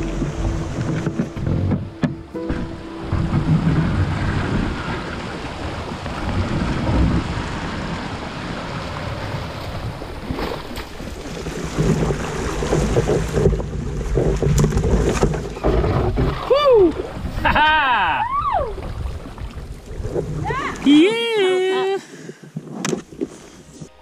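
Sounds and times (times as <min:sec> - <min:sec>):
wind rushing over microphone: 0:00.0 - 0:15.6
water sloshing around canoe: 0:00.0 - 0:17.7, 0:18.7 - 0:20.8.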